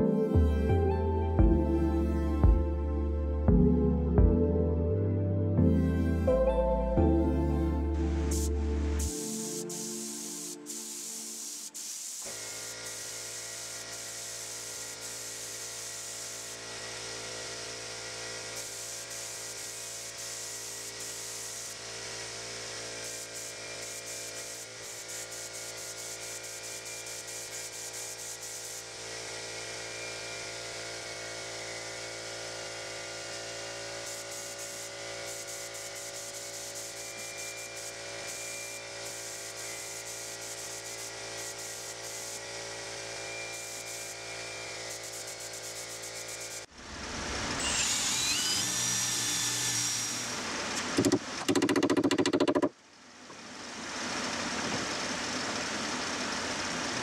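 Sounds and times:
spray gun hissing: 0:08.0 - 0:16.8, 0:18.6 - 0:22.4, 0:23.0 - 0:29.0, 0:34.0 - 0:42.8, 0:43.5 - 0:44.2, 0:44.8 - 0:46.7.

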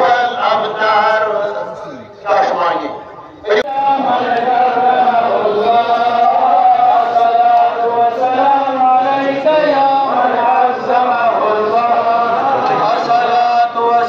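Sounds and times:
man chanting a recitation: 0:00.0 - 0:14.0.

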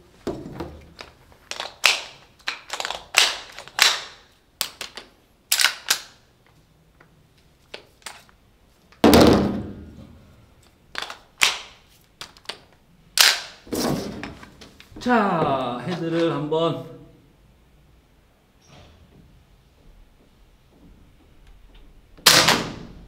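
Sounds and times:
airsoft rifle shots: 0:22.2 - 0:23.0.

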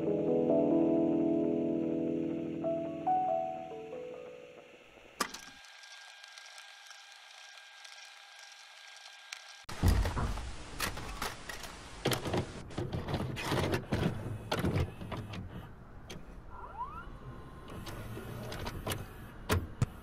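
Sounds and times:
short rising squeak: 0:16.5 - 0:17.2.

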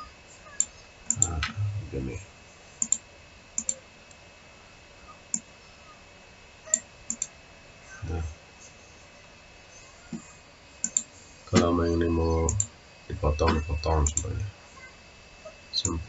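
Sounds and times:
computer mouse clicking: 0:00.6 - 0:01.4, 0:02.8 - 0:03.0, 0:03.6 - 0:03.8, 0:06.7 - 0:07.3, 0:10.8 - 0:11.7.

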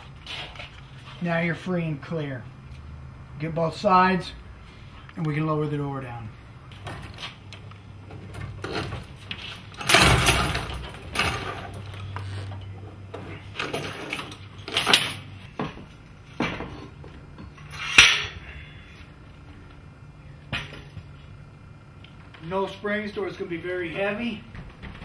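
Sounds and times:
metal springs clanking: 0:09.8 - 0:11.9, 0:17.6 - 0:18.5.

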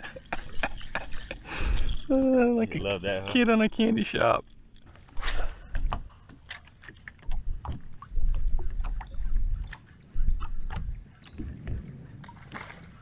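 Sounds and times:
water lapping against boat hull: 0:00.0 - 0:13.0
wind rumbling on microphone: 0:07.2 - 0:13.0.

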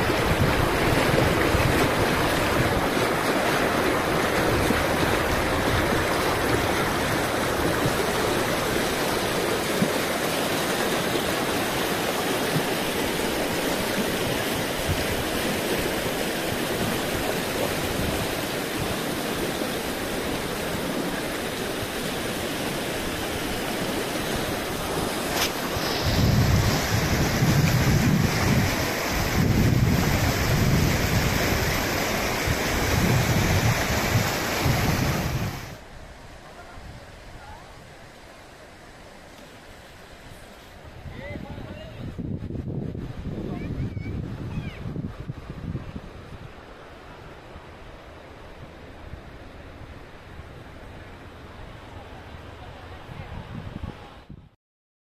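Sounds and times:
wind buffeting microphone: 0:00.0 - 0:10.0, 0:23.8 - 0:37.6, 0:40.8 - 0:47.4, 0:52.7 - 0:54.6
river rushing over stones: 0:00.0 - 0:54.2.

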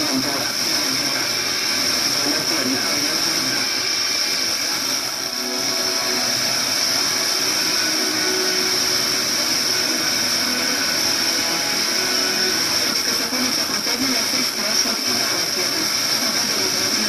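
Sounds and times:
faint distant radio station audio: 0:00.0 - 0:17.0
radio static hiss: 0:00.0 - 0:17.0.

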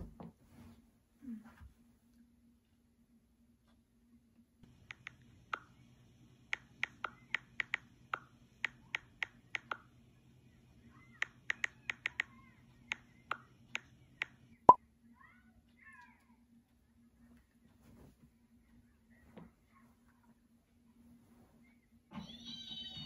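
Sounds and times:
touchscreen keyboard clicks: 0:11.2 - 0:12.3.

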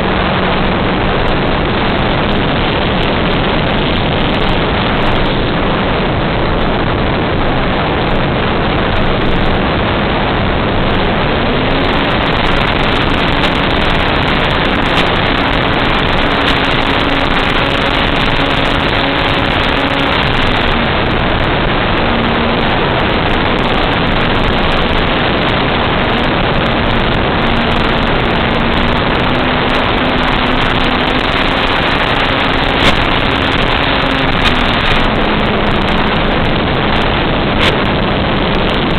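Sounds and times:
propeller hiss: 0:00.0 - 0:38.9
electric motor whine: 0:09.0 - 0:38.9.

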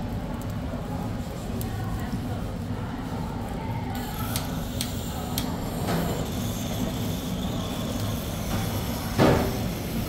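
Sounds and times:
gas torch flame roaring: 0:03.4 - 0:10.0.

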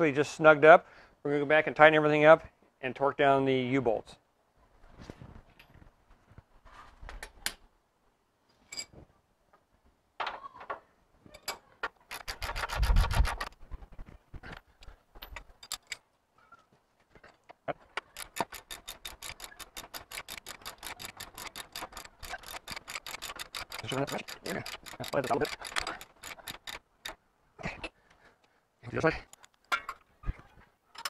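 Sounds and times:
hand ratchet clicking: 0:12.1 - 0:13.5, 0:18.0 - 0:27.2.

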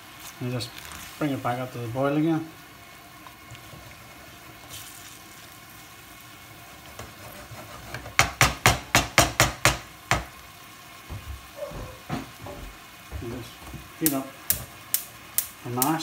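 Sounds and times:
sauce simmering in a pan: 0:00.0 - 0:16.0.

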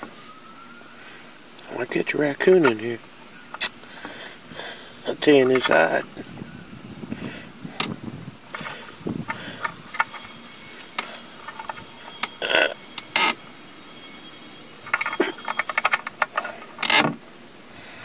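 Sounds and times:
rattling clicks: 0:07.8 - 0:12.4, 0:14.8 - 0:17.2.

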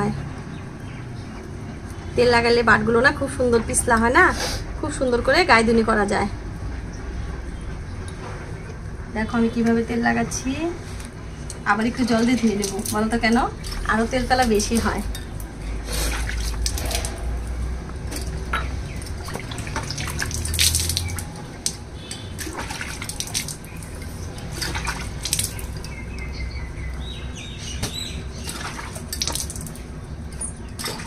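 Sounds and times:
water splashing on concrete floor: 0:11.7 - 0:27.1, 0:27.7 - 0:31.0.

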